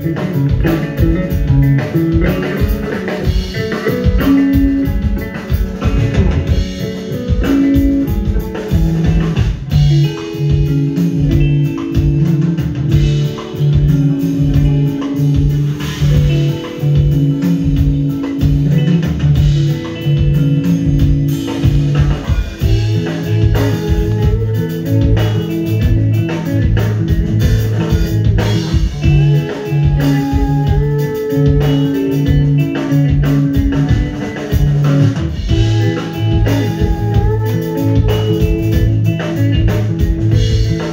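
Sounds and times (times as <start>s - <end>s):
clean electric guitar: 0.0s - 40.9s
drum kit: 0.0s - 40.9s
melodic bass guitar line: 0.0s - 40.9s.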